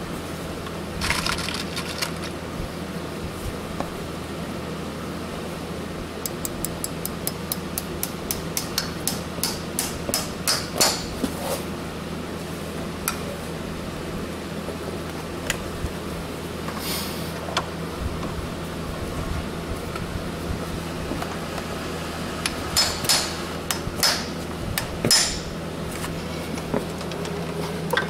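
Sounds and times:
hammer tapping horseshoe nail: 6.3s - 11.1s, 22.8s - 24.3s.

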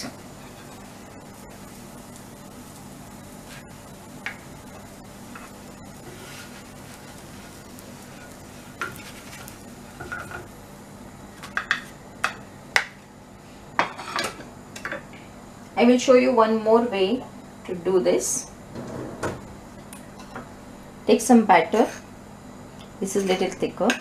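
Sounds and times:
low steady sizzle: 0.0s - 24.0s.

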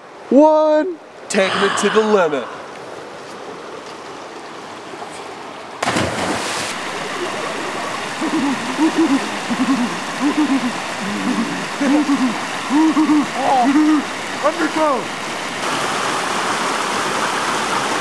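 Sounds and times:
water churning: 1.3s - 18.0s
loud splash into lake: 5.8s - 7.6s.

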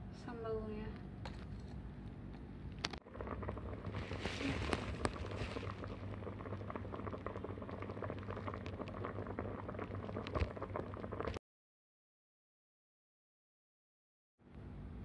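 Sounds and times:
water boiling with popping bubbles: 2.8s - 11.4s.

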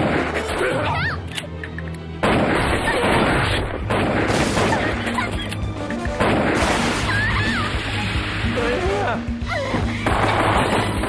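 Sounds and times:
action music: 0.0s - 11.0s
rapid gunfire: 2.2s - 5.1s, 6.2s - 7.2s
explosive booms: 6.2s - 8.2s.

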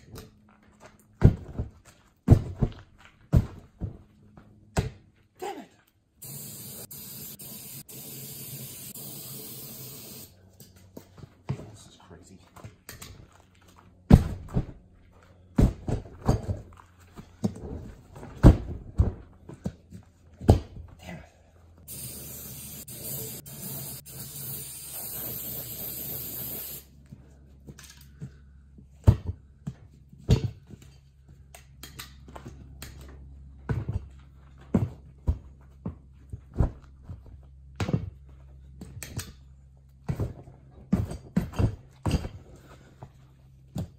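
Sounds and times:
spray can hissing: 6.2s - 10.3s, 21.9s - 26.9s.

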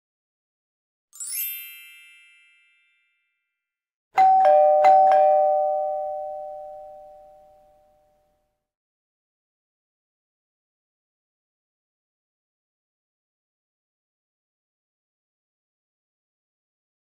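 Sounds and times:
high twinkling chime: 1.2s - 3.4s
two-tone ding-dong chime: 1.3s - 3.4s, 4.2s - 8.1s.

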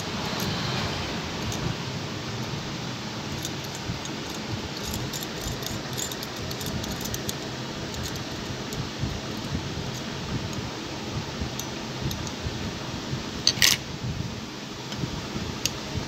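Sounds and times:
steady low hum: 0.0s - 16.0s
metallic clicks of screw and washer: 13.5s - 13.8s.

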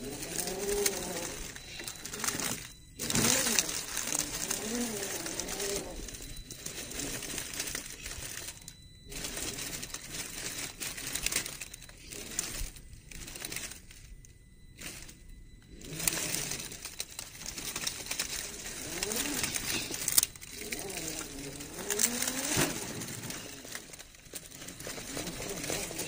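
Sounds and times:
tyres crunching dry leaves: 0.0s - 26.0s.

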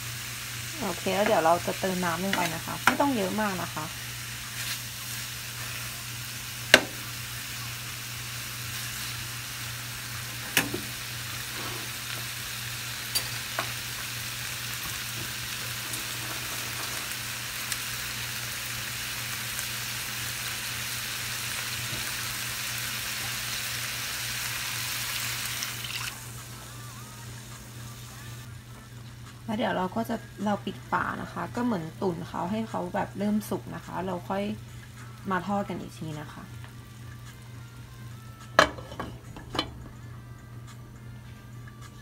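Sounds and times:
meat sizzling in a frying pan: 0.0s - 28.5s.

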